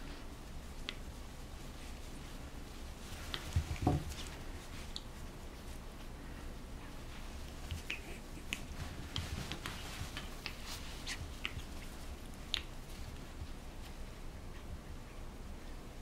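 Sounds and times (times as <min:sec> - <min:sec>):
puppy chewing fingers clicks: 0:07.5 - 0:10.6, 0:12.4 - 0:12.7.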